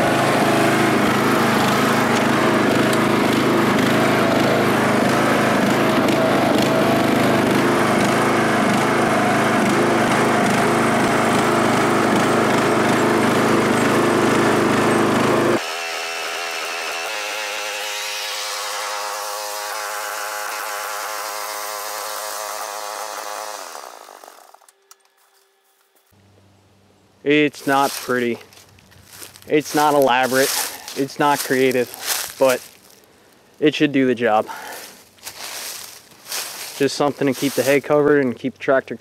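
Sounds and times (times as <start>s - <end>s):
lawn tractor engine running: 0.0s - 15.6s, 18.6s - 24.8s, 27.5s - 33.0s, 34.4s - 38.0s.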